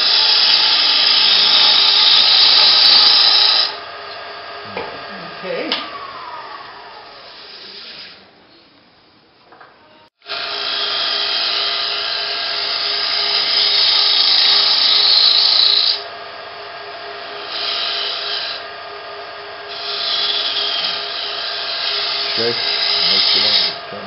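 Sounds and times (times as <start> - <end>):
gouge scraping wood on lathe: 0.0 - 4.3, 10.3 - 16.1, 16.7 - 24.0
lathe humming: 0.0 - 8.2, 10.2 - 24.0.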